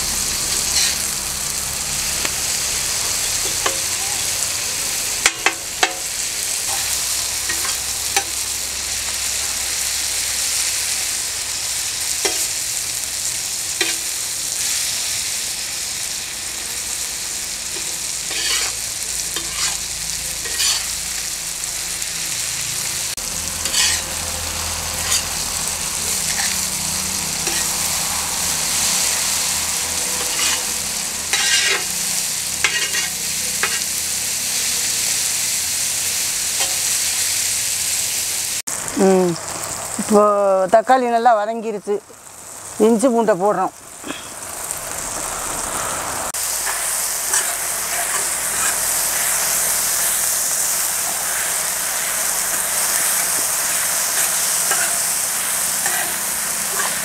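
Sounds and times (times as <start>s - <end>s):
vegetables sizzling in oil: 0.0s - 57.0s
metal spatula scraping a pan: 0.5s - 1.1s, 5.2s - 8.4s, 12.2s - 12.6s, 13.7s - 14.8s, 17.7s - 19.8s, 20.4s - 21.0s, 23.5s - 24.2s, 24.9s - 34.0s, 46.4s - 57.0s.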